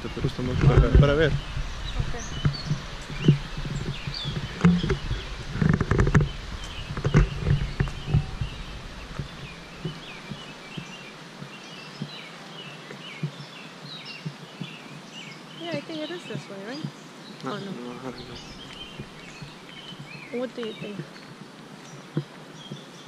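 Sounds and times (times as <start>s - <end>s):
low rumble: 0.0s - 11.0s
microphone bumps: 0.0s - 12.3s, 15.6s - 21.1s
birds chirping: 0.0s - 23.0s.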